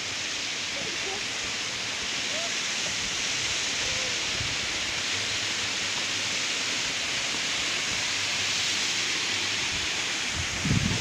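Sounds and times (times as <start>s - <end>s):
waterfall splashing onto rocks: 0.0s - 11.0s.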